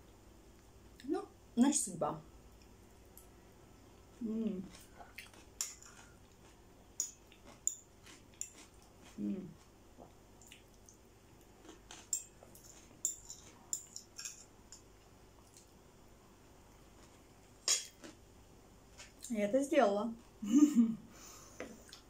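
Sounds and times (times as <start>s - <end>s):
person humming: 4.2s - 4.7s, 9.2s - 9.6s
chewing sounds: 4.6s - 14.3s.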